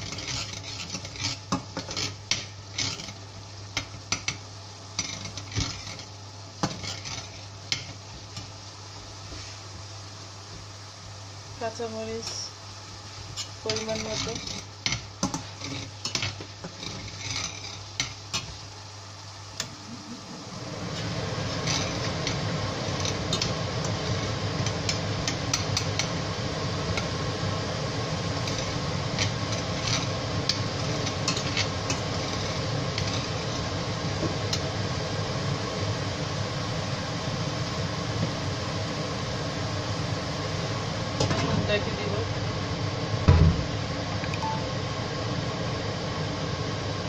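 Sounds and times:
spatula scraping metal pot: 0.0 - 3.2, 5.0 - 7.9, 13.3 - 18.5, 28.4 - 33.7.

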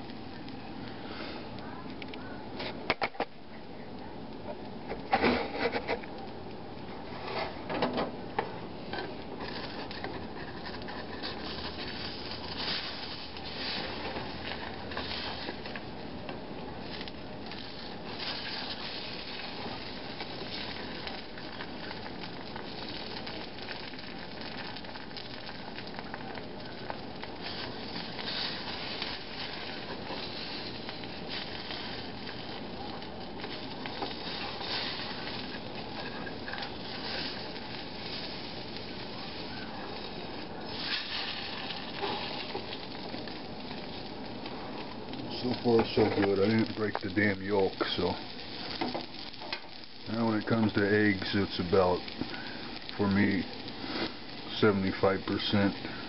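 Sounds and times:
egg sizzling in oil: 4.6 - 56.0.

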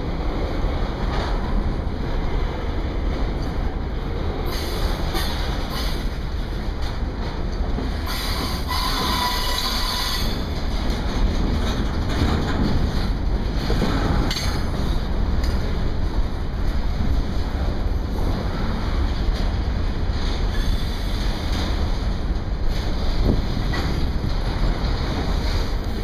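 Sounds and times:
wind buffeting microphone: 0.0 - 9.2, 10.0 - 26.0
train wheels rumbling on rails: 0.0 - 26.0
wheels screeching and squealing: 8.1 - 10.4.

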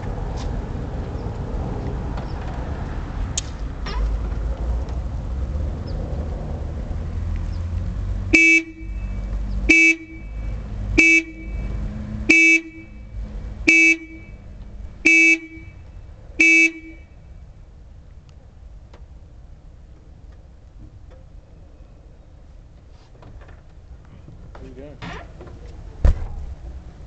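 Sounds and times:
car horn honks: 8.3 - 17.3.

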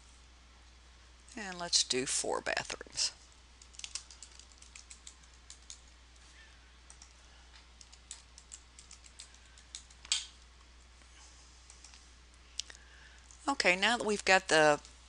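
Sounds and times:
keyboard keys clicking: 3.6 - 5.8, 7.8 - 10.2.

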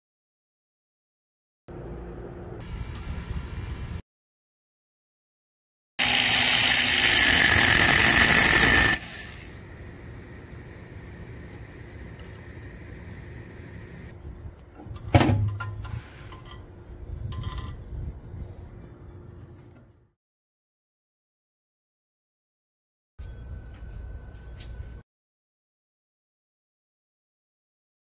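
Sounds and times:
cordless drill whining: 6.0 - 9.5.

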